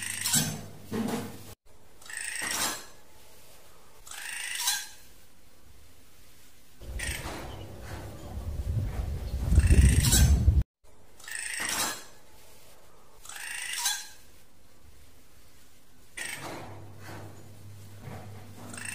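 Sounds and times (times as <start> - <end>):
harsh scratchy bird calls: 2.0 - 2.7, 4.0 - 5.1, 6.8 - 10.6, 11.2 - 11.8, 13.2 - 14.4.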